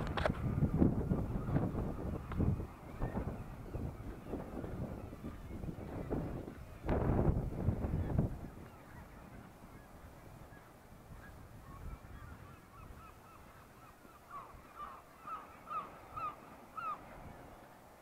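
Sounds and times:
seabirds honking calls: 7.8s - 17.8s.

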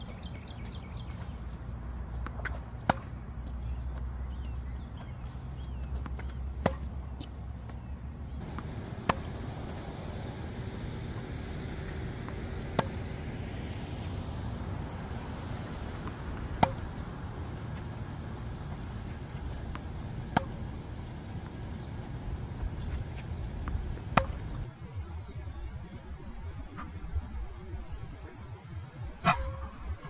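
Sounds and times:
steady background hum: 0.0s - 30.0s
tennis racket hitting ball: 2.2s - 3.2s, 6.1s - 6.9s, 8.4s - 20.8s, 22.4s - 24.6s.

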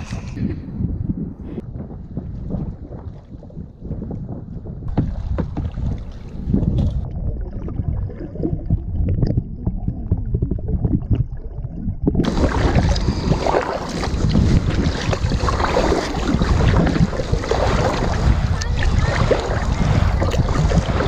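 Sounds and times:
wind on microphone: 0.0s - 21.0s
muffled underwater sloshing: 1.8s - 21.0s
kayak paddle strokes splashing: 12.2s - 21.0s.

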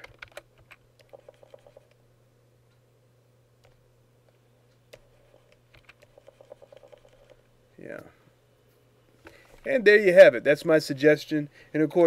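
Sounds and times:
computer mouse clicks: 0.0s - 2.0s, 4.8s - 7.4s
low steady hum: 0.0s - 12.0s.

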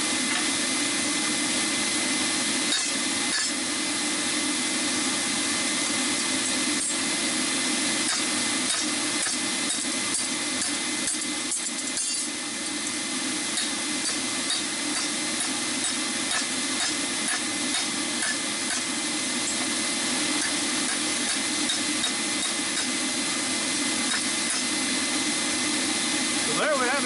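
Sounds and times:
hammer striking steel on anvil: 13.6s - 18.9s, 20.4s - 23.0s, 24.1s - 24.7s.

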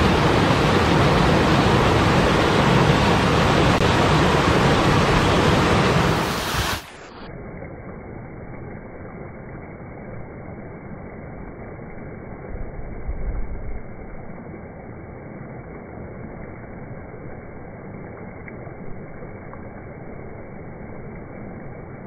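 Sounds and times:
water rushing over rocks: 0.0s - 22.0s.

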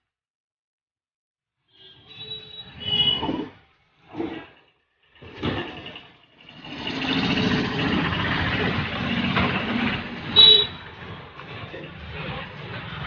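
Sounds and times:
vehicle engine running: 6.4s - 13.0s.

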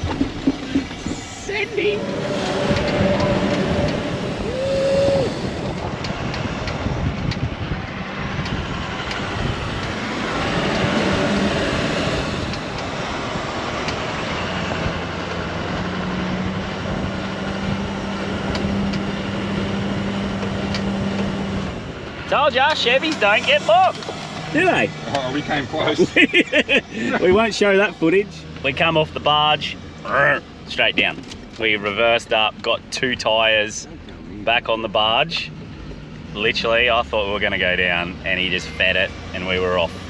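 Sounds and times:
tyre and wind noise: 0.0s - 27.5s
truck engine droning under load: 0.0s - 32.2s.

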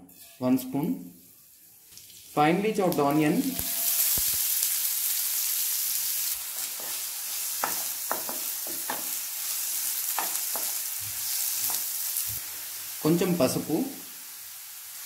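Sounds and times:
spatula scraping pan: 0.0s - 0.5s
onions sizzling in oil: 0.0s - 15.0s.

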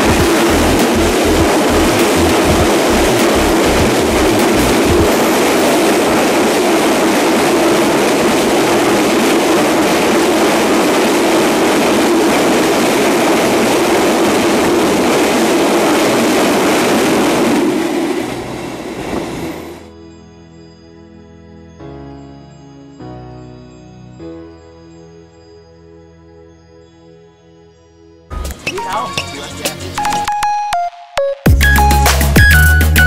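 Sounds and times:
wheel clacks over rail joints: 0.0s - 6.2s
freight train rumbling and rattling: 0.0s - 19.9s.

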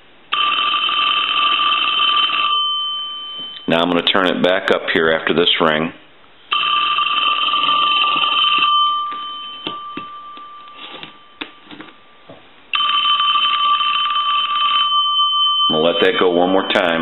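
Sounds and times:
telephone bell ringing: 0.3s - 3.9s, 6.5s - 12.1s, 12.7s - 17.0s.

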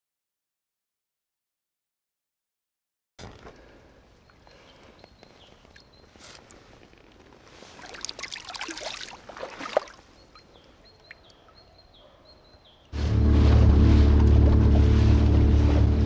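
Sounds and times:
splashing in shallow water: 7.4s - 11.4s
outro music with low tones: 13.0s - 16.0s.

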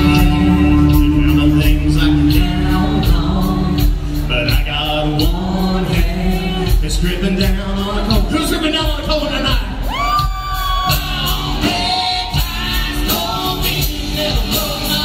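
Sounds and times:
electric guitar: 0.0s - 7.7s
bass guitar: 0.0s - 15.0s
steady drum beat: 0.0s - 15.0s.

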